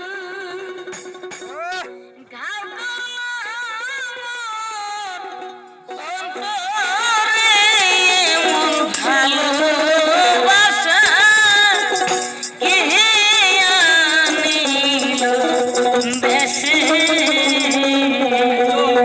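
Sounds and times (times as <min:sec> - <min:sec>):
person singing ornamented melody: 0:00.0 - 0:19.0
steady held notes: 0:05.4 - 0:19.0
tambourine jingles: 0:07.6 - 0:18.8.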